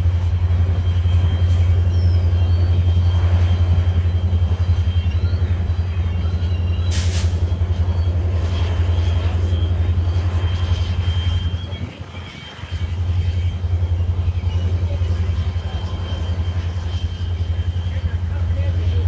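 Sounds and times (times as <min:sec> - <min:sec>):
locomotive engine idling: 0:00.0 - 0:19.0
air hiss: 0:06.9 - 0:07.4.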